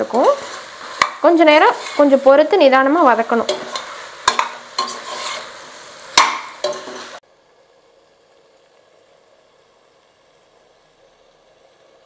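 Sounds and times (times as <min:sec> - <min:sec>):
spatula scraping a pot: 0:00.0 - 0:02.2, 0:03.4 - 0:05.6
food sizzling: 0:00.0 - 0:12.0.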